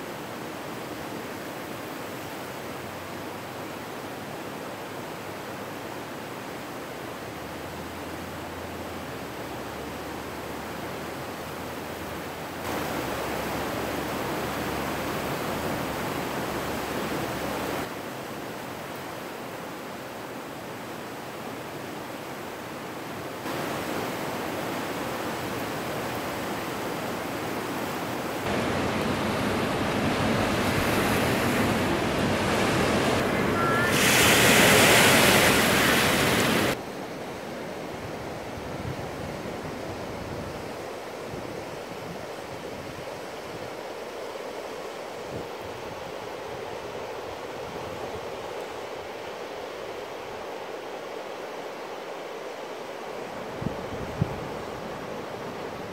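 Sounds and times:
river water roaring: 0:00.0 - 0:55.9
wind noise on microphone: 0:53.6 - 0:54.8.

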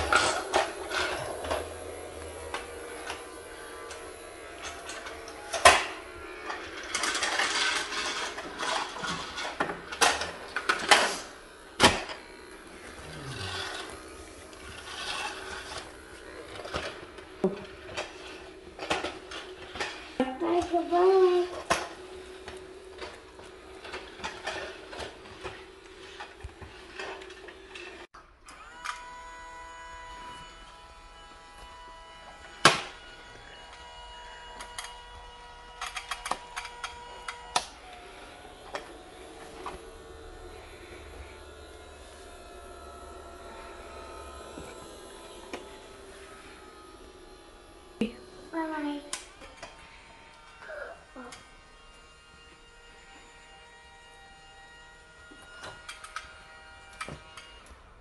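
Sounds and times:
toy vacuum rattling and scraping: 0:00.0 - 0:29.0, 0:30.3 - 0:52.3.

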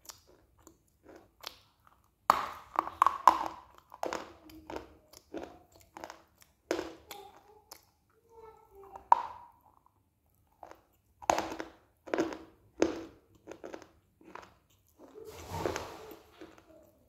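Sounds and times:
person chewing crunchy clay: 0:00.0 - 0:07.9, 0:09.0 - 0:15.8.

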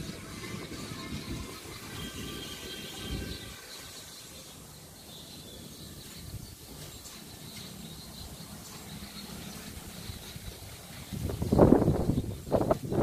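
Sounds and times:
wind rumbling on microphone: 0:00.0 - 0:03.6, 0:09.6 - 0:13.0.

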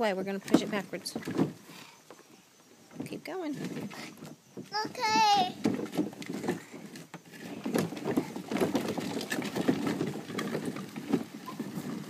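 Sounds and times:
plastic toy car rattling over grass: 0:00.0 - 0:12.0.

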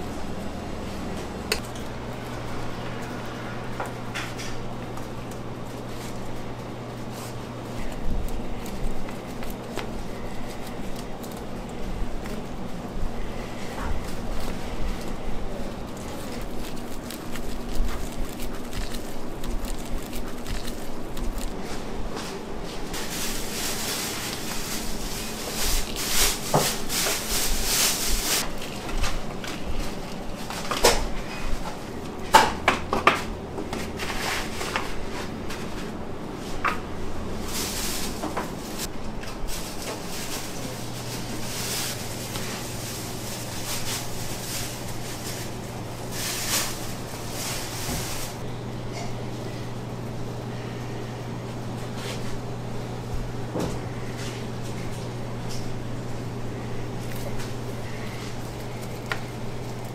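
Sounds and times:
steady low hum: 0:00.0 - 0:59.9
trays and utensils clattering: 0:02.8 - 0:19.4.

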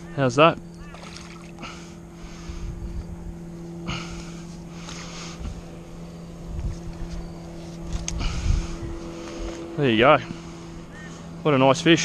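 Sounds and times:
distant motorboat engine drone: 0:00.0 - 0:12.0
fish splashing through water: 0:00.8 - 0:01.7
wind rumbling on microphone: 0:02.4 - 0:03.4, 0:06.4 - 0:09.5.

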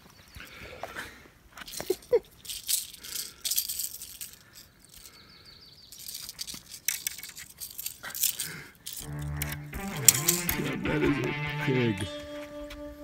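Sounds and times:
fishing lure rattling: 0:01.6 - 0:05.2, 0:05.9 - 0:10.6.

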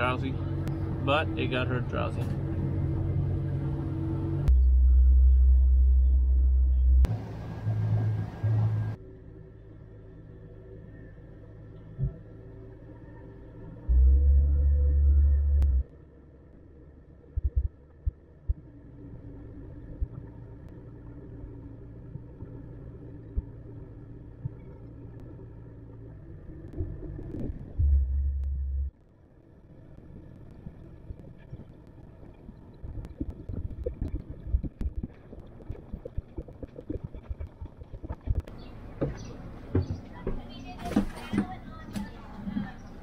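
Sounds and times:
boat engine humming: 0:00.0 - 0:43.0
short low thumps: 0:17.4 - 0:18.7.

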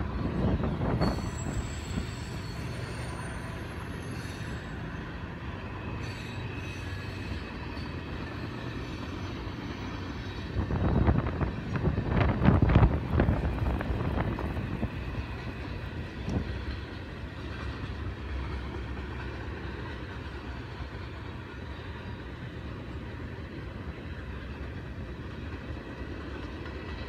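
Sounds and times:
train wheels rumbling on rail: 0:00.0 - 0:27.0
high-pitched wheel squeal: 0:00.6 - 0:05.0, 0:06.0 - 0:08.6.

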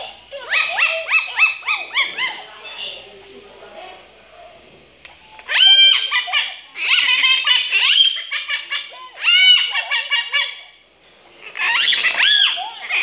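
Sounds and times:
parrot chattering calls: 0:00.0 - 0:03.0, 0:05.4 - 0:10.8, 0:11.4 - 0:13.0.

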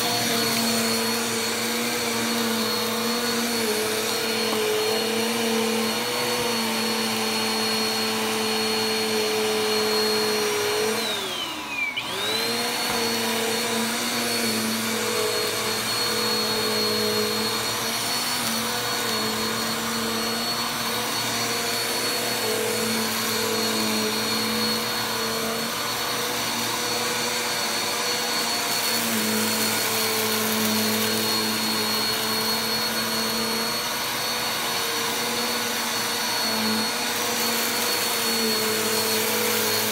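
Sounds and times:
vacuum cleaner motor whine: 0:00.0 - 0:39.9.

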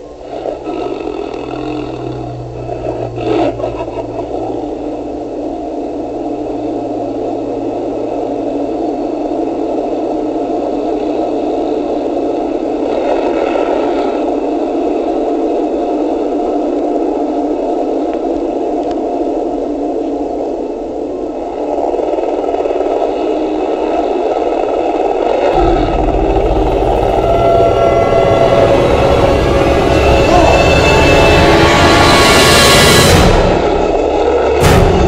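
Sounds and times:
mechanical rumble with rattling: 0:00.0 - 0:11.8, 0:25.2 - 0:35.0
low hum: 0:00.0 - 0:12.9, 0:25.5 - 0:35.0.

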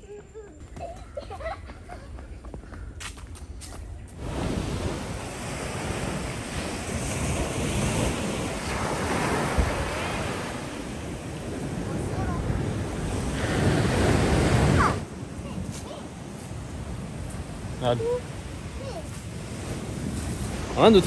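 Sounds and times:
ocean waves breaking on beach: 0:04.2 - 0:21.0.

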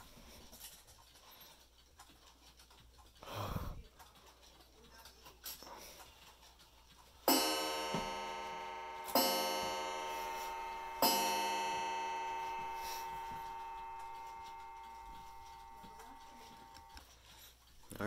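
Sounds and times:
clock gong striking: 0:07.3 - 0:17.0.

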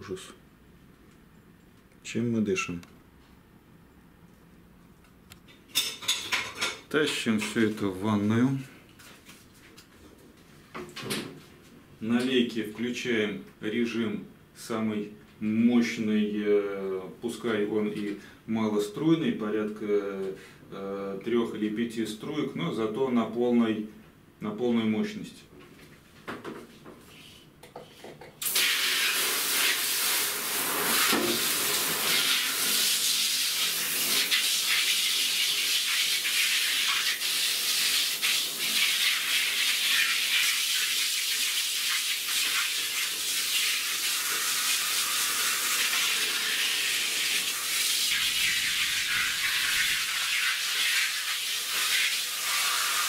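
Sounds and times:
shower spray on blinds: 0:28.4 - 0:53.0.

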